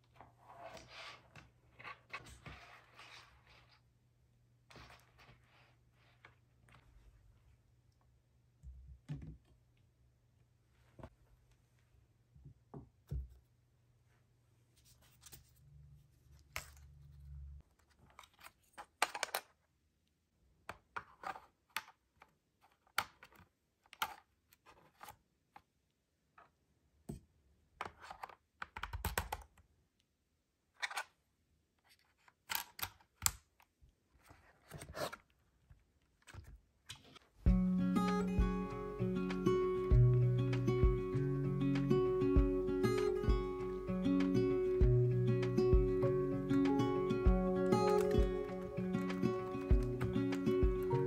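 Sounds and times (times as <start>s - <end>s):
keyboard clicks and taps: 47.3s - 51.0s.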